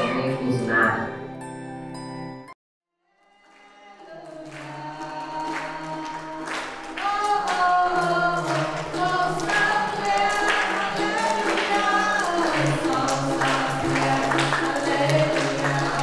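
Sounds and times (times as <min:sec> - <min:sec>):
voices singing worship song: 0:03.7 - 0:16.0
ukulele strumming: 0:04.7 - 0:16.0.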